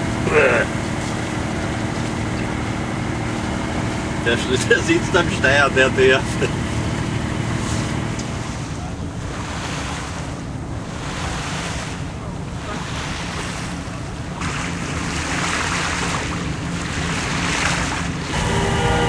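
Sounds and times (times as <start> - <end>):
water rushing along hull: 0.0 - 19.0
low steady hum: 10.2 - 19.0.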